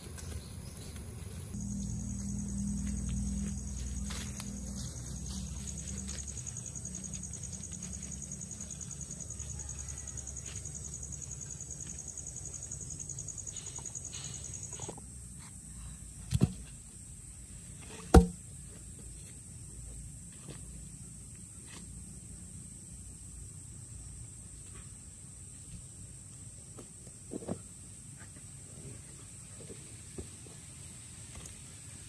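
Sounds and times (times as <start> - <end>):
low hum: 0.0 - 8.9
insect trill: 1.5 - 15.3
sharp knocks: 18.1 - 18.4.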